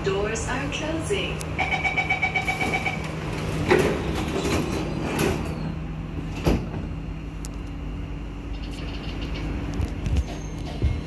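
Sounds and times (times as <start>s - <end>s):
train humming: 0.0s - 11.0s
train doors sliding shut: 2.2s - 7.1s.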